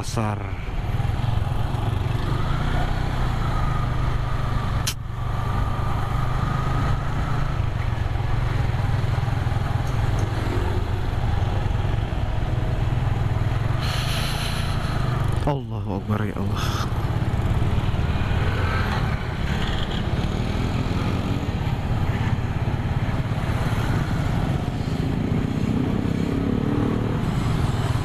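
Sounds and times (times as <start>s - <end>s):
road and wind noise: 0.0s - 28.0s
burst of hiss: 13.8s - 15.1s.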